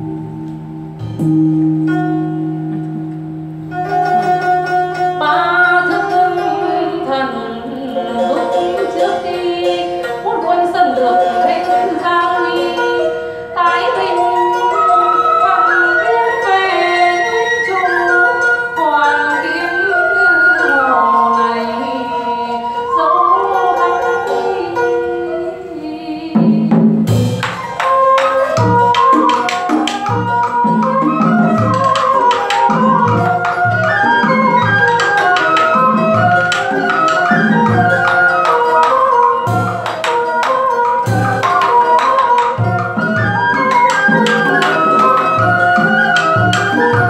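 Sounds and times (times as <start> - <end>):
drum strokes: 0.0 - 7.2, 26.4 - 47.0
wavering sliding melodic line: 0.0 - 26.3, 27.5 - 47.0
plucked zither strings: 0.0 - 47.0.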